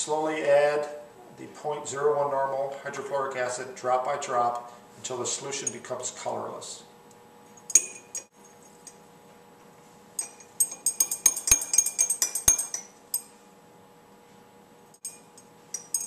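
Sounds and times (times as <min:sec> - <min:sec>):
glass rod clinking in beaker: 0:07.5 - 0:09.0, 0:10.2 - 0:13.4, 0:15.0 - 0:16.0.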